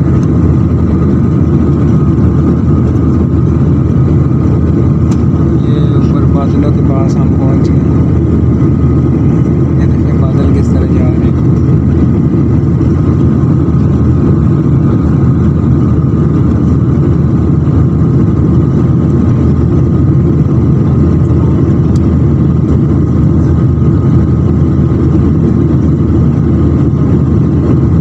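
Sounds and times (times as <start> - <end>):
faint steady whine: 0.0 - 28.0
jet engine and airflow roar: 0.0 - 28.0.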